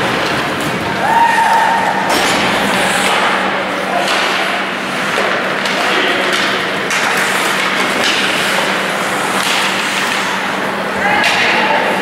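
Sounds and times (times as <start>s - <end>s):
low arena hum: 0.0s - 12.0s
skates scraping on ice: 4.0s - 10.6s.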